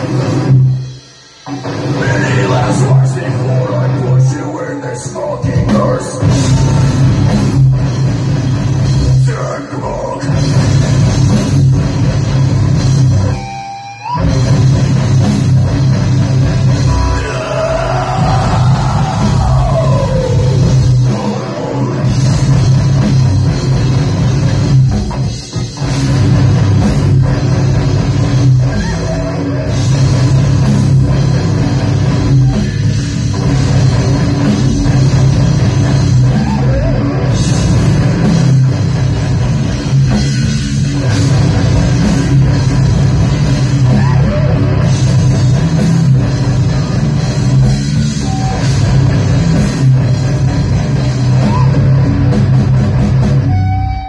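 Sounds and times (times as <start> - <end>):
heavy rock band playing: 0.0 - 54.0.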